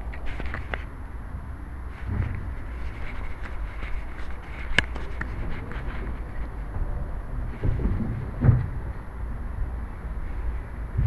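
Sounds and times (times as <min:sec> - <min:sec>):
microphone handling rumble: 0:01.9 - 0:09.5.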